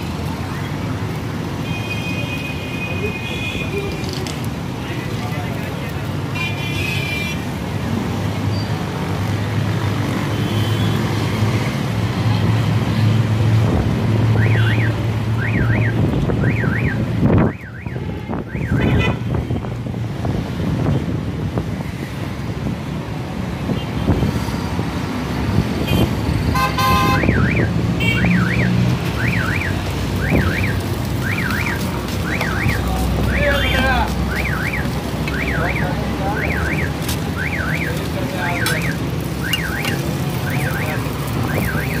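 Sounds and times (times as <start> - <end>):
street traffic: 0.0 - 42.0
car alarm wailing: 14.4 - 18.8, 26.6 - 42.0.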